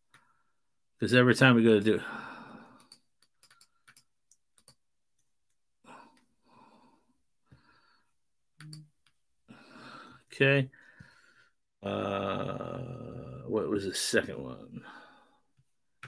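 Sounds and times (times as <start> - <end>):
keyboard and mouse clicks: 2.8 - 5.6, 8.6 - 9.2.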